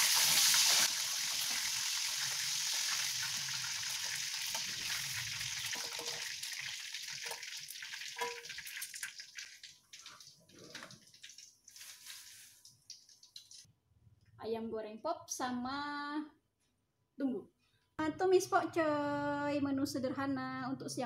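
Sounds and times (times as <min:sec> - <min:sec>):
chicken sizzling in hot oil: 0:00.0 - 0:13.6.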